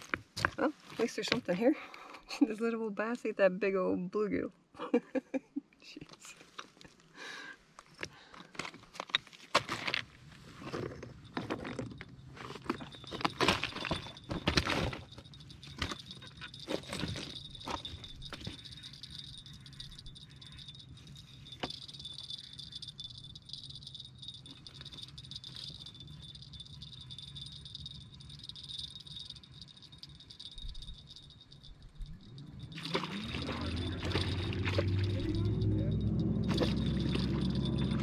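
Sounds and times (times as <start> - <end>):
night insects trilling: 17.4 - 36.0.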